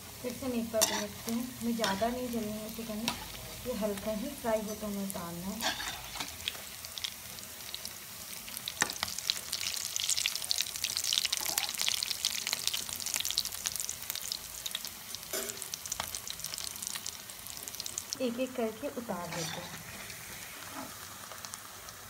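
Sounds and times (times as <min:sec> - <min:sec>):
oil sizzling with crackling pops: 0:00.0 - 0:22.0.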